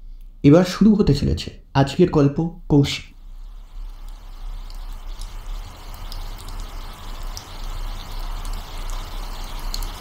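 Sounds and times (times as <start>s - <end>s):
water drips: 3.1s - 10.0s
steady rainfall: 3.3s - 10.0s.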